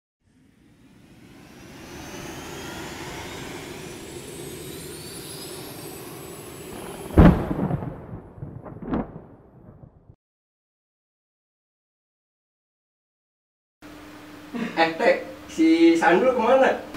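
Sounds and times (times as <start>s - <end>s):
rushing riser with rising tones: 0.2s - 9.6s
heavy boom: 6.8s - 10.2s
smaller hits: 7.0s - 9.8s.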